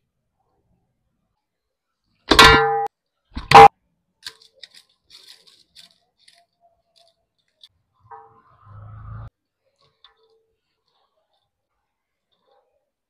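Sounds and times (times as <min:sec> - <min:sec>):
metal kitchenware clanging: 0:02.3 - 0:03.7
salt sprinkling on meat: 0:04.2 - 0:07.7.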